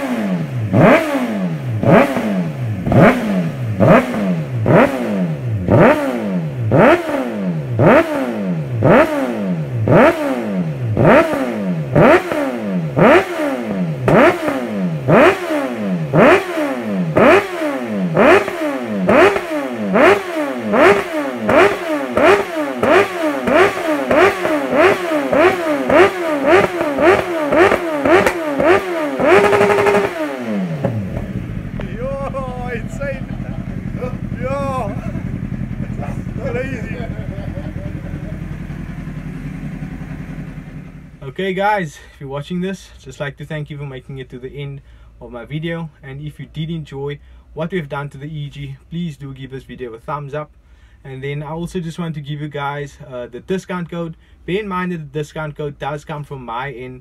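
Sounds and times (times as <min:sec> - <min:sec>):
motorcycle engine revving: 0:00.0 - 0:41.3.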